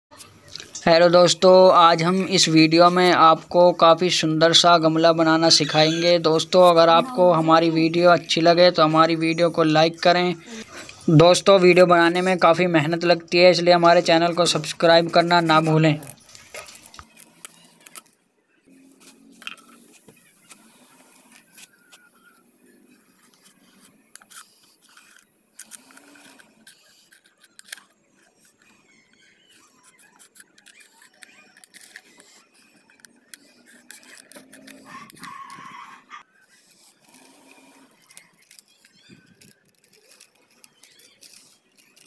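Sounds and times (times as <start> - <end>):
plastic bottle crackling: 14.5 - 18.1
scissors snipping plastic: 23.3 - 28.6, 29.8 - 35.6, 38.0 - 42.0.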